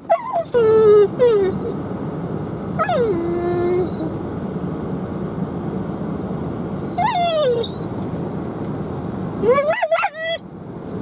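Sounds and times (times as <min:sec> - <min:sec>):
dog whining: 0:00.0 - 0:01.8, 0:02.8 - 0:04.2, 0:06.8 - 0:07.9, 0:09.4 - 0:10.4.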